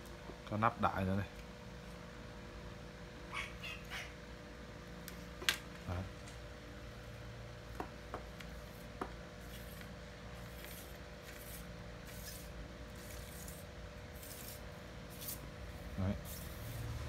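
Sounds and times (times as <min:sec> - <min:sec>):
rod rubbing and sliding: 0:09.4 - 0:17.0.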